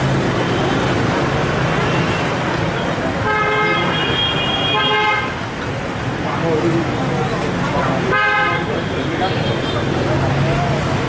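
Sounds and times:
street traffic din: 0.0 - 11.0
vehicle horn honking: 3.2 - 5.4, 8.1 - 9.8.

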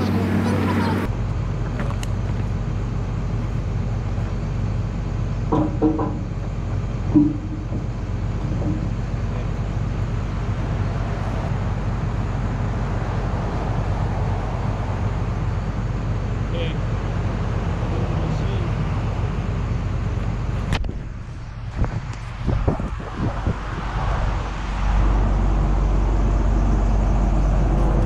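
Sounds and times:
excavator diesel engine idling: 0.0 - 21.7.

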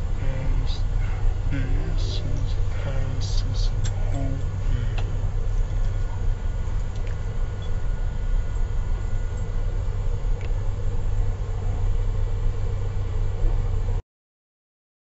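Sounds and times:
vehicle rumble from cabin: 0.0 - 12.0.

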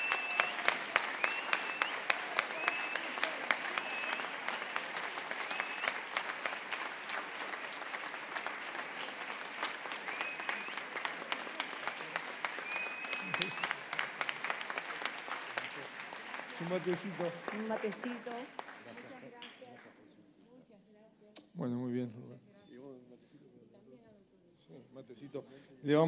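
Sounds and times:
audience applauding: 0.0 - 19.8.

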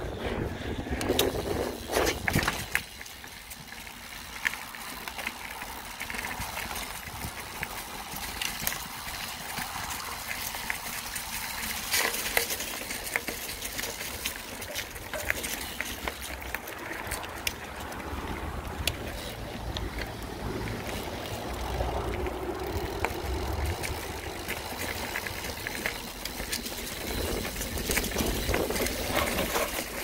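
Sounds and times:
bike clicks and rattles: 0.0 - 30.0
bike tyre noise: 0.0 - 30.0.

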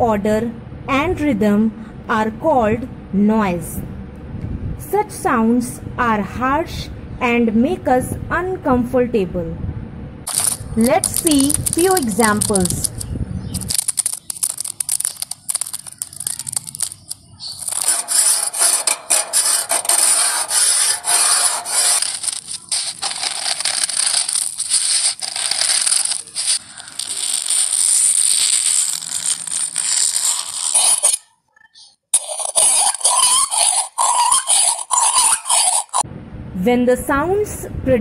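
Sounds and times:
fingernails scratching a mat: 13.6 - 31.2, 32.2 - 36.0
screwdriver scraping rusty metal: 13.7 - 31.2, 32.2 - 36.0
fingernails scratching a wall: 14.0 - 31.2, 32.2 - 36.0.

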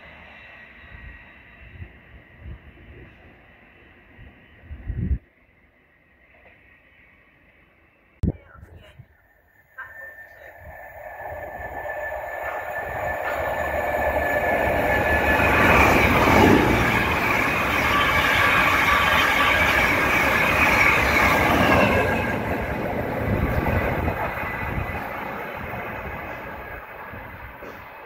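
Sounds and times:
passenger train passing: 0.0 - 28.0.

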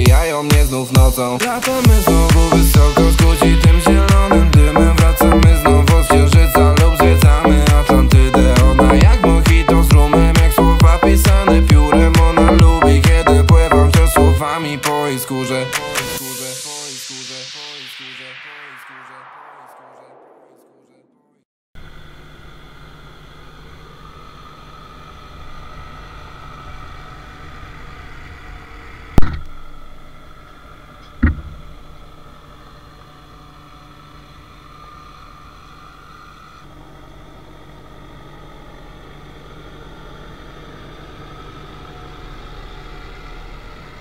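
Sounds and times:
tractor diesel engine running: 0.0 - 14.4
sharp knocks: 31.2 - 31.7.

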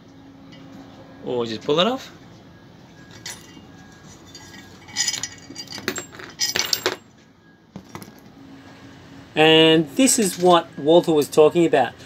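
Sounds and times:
metal tools clinking and scraping: 3.0 - 7.2, 10.0 - 10.7.

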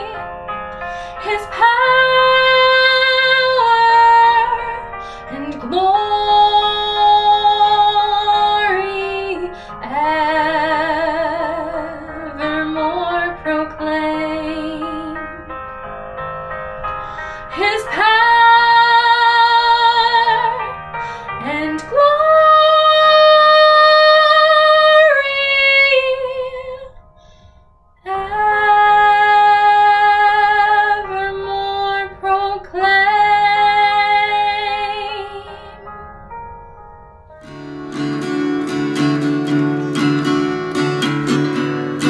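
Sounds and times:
woman singing a carol: 1.2 - 15.2, 17.5 - 20.8, 21.4 - 26.9, 28.1 - 35.6.

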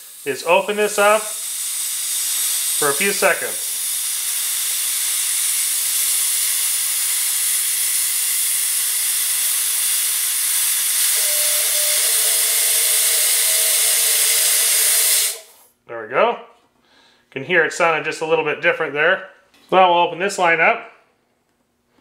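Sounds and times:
gas hissing from hose fitting: 0.0 - 15.7
low whistle: 11.1 - 15.2.

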